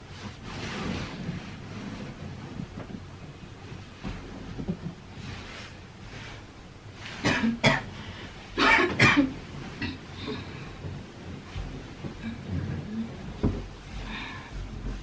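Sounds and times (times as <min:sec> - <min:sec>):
person coughing: 0:07.2 - 0:08.0, 0:08.6 - 0:10.0.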